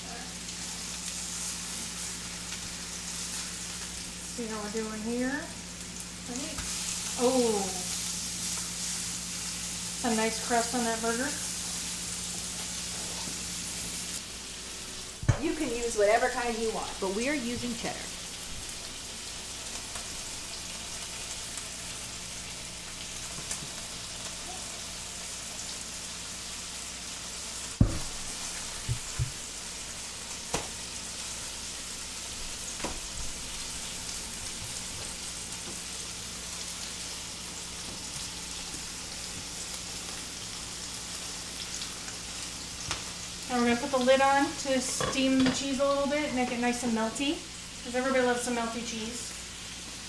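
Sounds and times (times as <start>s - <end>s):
burger patties sizzling in pan: 0.0s - 50.0s.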